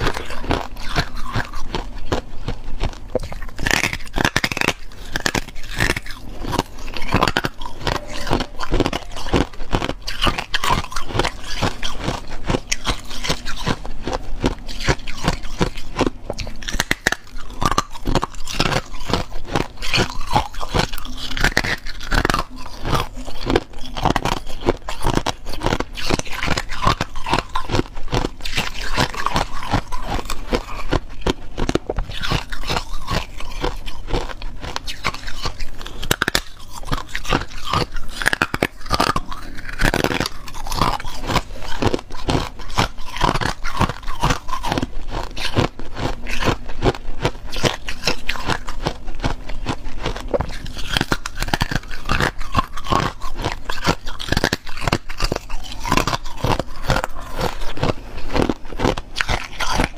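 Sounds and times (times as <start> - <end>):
ice crunching being chewed: 0.0 - 59.9.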